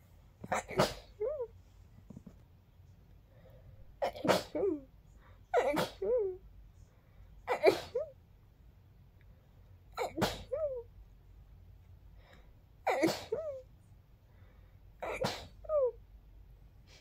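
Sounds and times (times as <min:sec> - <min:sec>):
person sneezing: 0:00.5 - 0:01.5, 0:04.0 - 0:04.9, 0:05.5 - 0:06.4, 0:07.5 - 0:08.1, 0:10.0 - 0:10.8, 0:12.9 - 0:13.6, 0:15.0 - 0:15.9.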